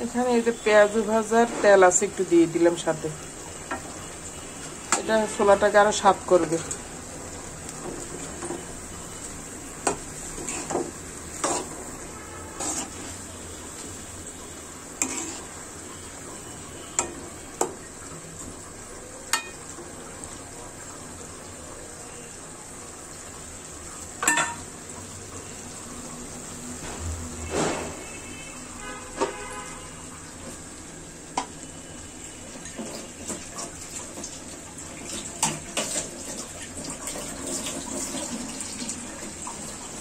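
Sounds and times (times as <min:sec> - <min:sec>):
curry sizzling: 0:00.0 - 0:40.0
metal spatula scraping pan: 0:09.8 - 0:13.2, 0:15.0 - 0:15.6.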